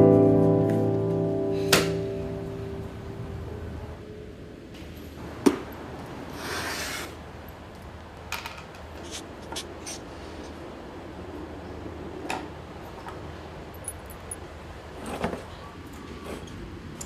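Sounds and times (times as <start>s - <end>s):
piano note: 0.0s - 3.9s.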